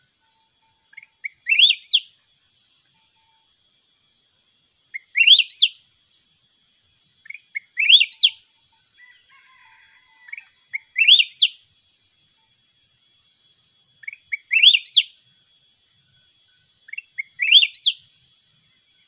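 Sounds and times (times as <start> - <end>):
soft bird chirps: 0.0 - 19.0
bird whistling phrases: 1.2 - 2.1, 5.0 - 5.8, 7.3 - 8.4, 10.8 - 11.6, 14.0 - 15.1, 16.9 - 18.0.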